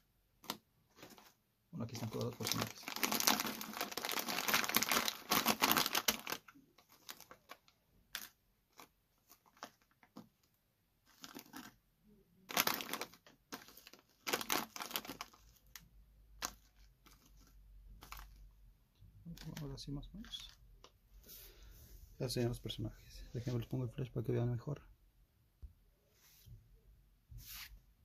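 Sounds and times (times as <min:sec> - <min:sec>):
plastic bag crinkling: 0:00.9 - 0:10.2, 0:11.0 - 0:11.8, 0:12.5 - 0:18.5, 0:19.2 - 0:20.6.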